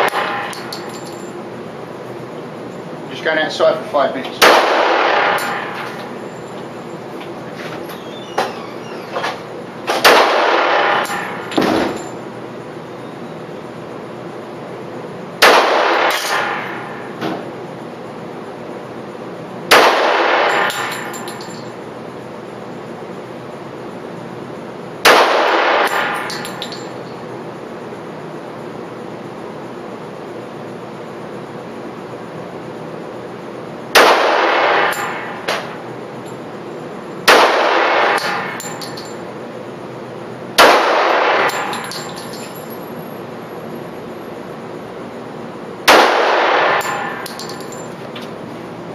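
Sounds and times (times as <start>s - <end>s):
gunshots echoing indoors: 0.0s - 1.0s, 4.4s - 6.1s, 9.9s - 12.0s, 15.4s - 17.2s, 19.7s - 21.4s, 25.0s - 26.9s, 33.9s - 35.8s, 37.2s - 39.2s, 40.6s - 42.4s, 45.8s - 47.9s.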